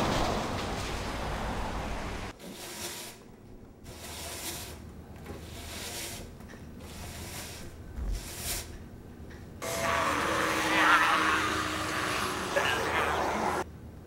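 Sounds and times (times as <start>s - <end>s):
broom sweeping floor: 2.3s - 8.8s.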